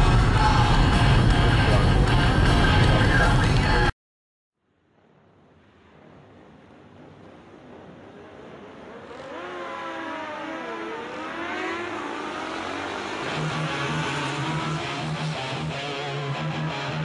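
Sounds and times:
vehicle engine revving: 6.3 - 17.0.

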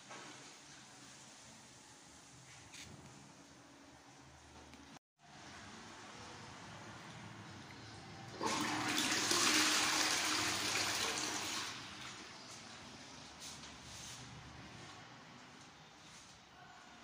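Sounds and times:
toilet flushing: 8.3 - 12.5.

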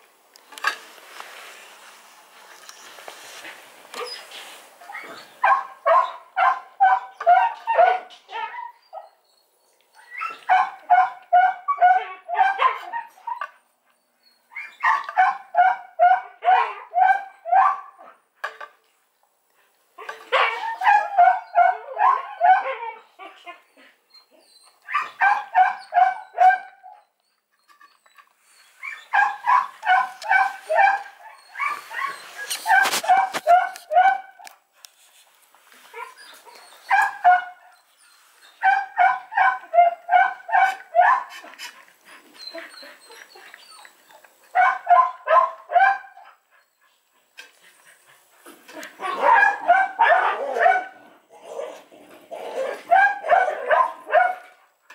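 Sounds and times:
dog yipping and whimpering: 4.0 - 9.3, 9.9 - 13.6, 14.5 - 17.9, 20.0 - 34.2, 35.9 - 41.5, 42.4 - 46.8, 48.7 - 54.4.

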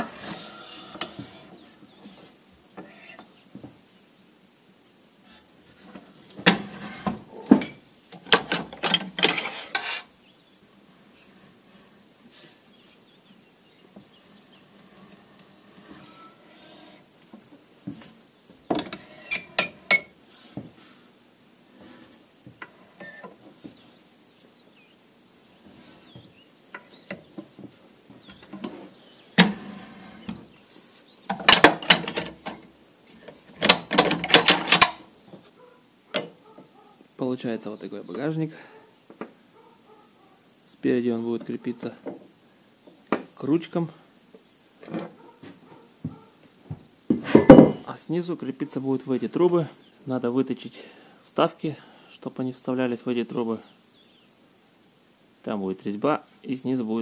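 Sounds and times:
steel rod clanking on metal frame: 7.6 - 10.1, 18.8 - 20.1
metal clanking and knocking: 47.4 - 47.8.

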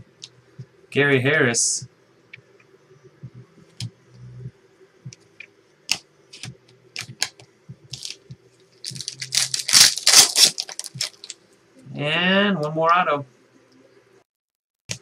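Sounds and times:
wrapper torn and crinkled: 8.8 - 11.4
cards clicking and rustling: 8.9 - 11.4.

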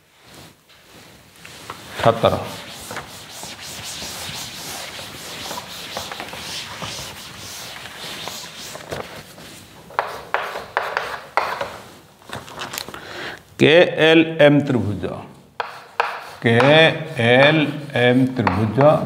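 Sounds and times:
duster rubbing a chalkboard: 0.2 - 12.0, 15.6 - 19.0
chalk writing on a board: 2.4 - 8.8, 10.0 - 11.7, 15.6 - 19.0.

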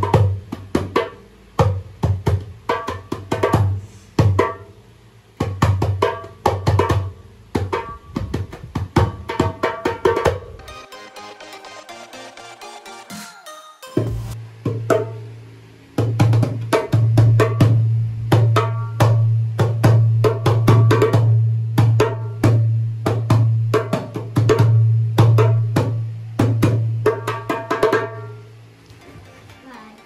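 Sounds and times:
hand drum slaps: 0.0 - 4.7, 5.4 - 10.6, 16.0 - 28.2.

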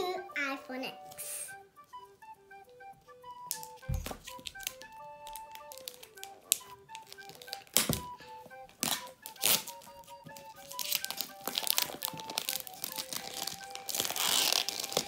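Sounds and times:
background music simple melody: 0.0 - 15.0
fingernails scratching plastic wrap: 10.6 - 15.0.

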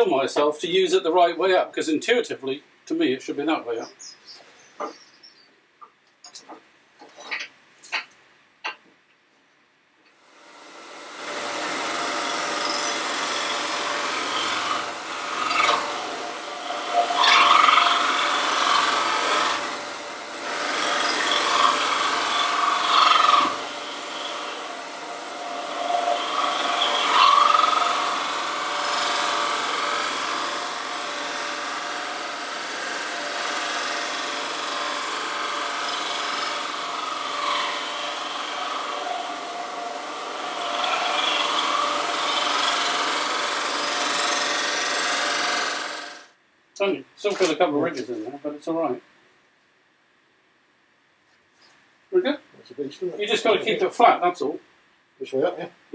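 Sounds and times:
wood lathe hum: 10.2 - 46.3
scraper rasping on wood: 11.3 - 39.5.

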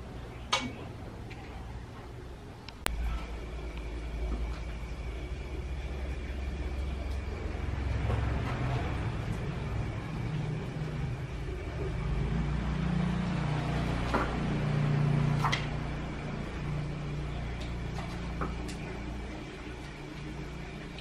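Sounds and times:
low steady rumble: 0.0 - 21.0.

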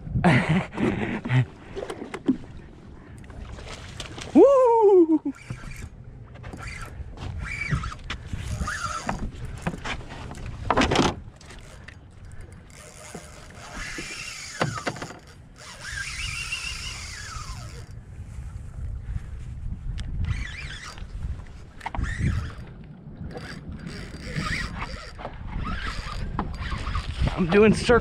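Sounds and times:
water lapping a boat hull: 0.0 - 19.4, 20.2 - 28.0
wind rumbling on microphone: 0.0 - 28.0
wavering high squeals: 5.2 - 9.2, 15.6 - 17.9, 20.2 - 21.1, 22.0 - 22.7, 23.3 - 27.2.

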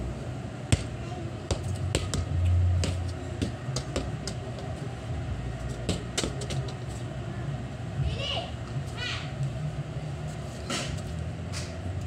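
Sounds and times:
football kicked on concrete: 0.7 - 4.4.

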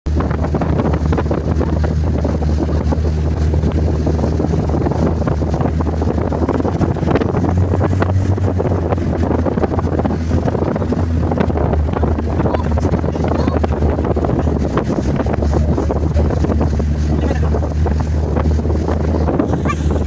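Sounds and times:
motorboat engine running: 0.0 - 20.0
water rushing past hull: 0.1 - 20.0
wind buffeting microphone: 0.1 - 20.0.

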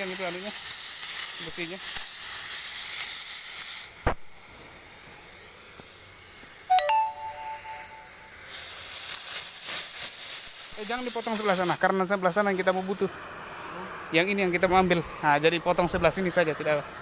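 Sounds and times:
cutting torch hissing: 0.0 - 6.7, 8.4 - 17.0
two-note chime: 6.7 - 8.4.

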